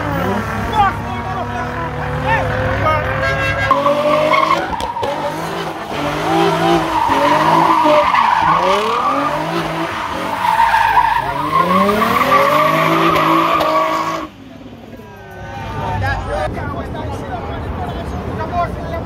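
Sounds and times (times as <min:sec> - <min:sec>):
car engine revving: 0:00.0 - 0:16.5
tyres squealing on pavement: 0:02.4 - 0:14.4.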